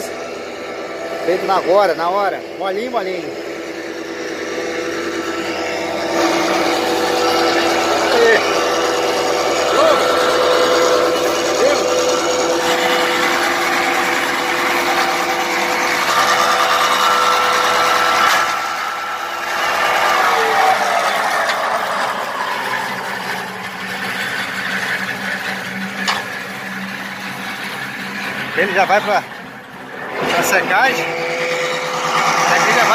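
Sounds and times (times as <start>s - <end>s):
electric motor running: 0.0s - 29.2s, 30.0s - 32.9s
metal clatter: 21.1s - 32.9s.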